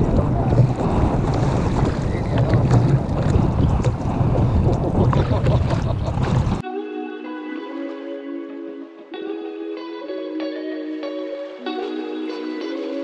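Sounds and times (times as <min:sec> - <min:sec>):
water lapping against a kayak: 0:00.0 - 0:06.6
wind on microphone: 0:00.0 - 0:06.6
guitar music: 0:06.6 - 0:13.0.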